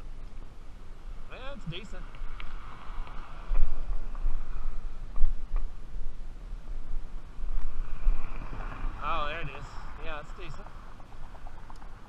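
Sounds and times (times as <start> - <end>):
wind buffeting microphone: 0.0 - 12.0
faint clicks: 2.1 - 4.4, 11.0 - 12.0.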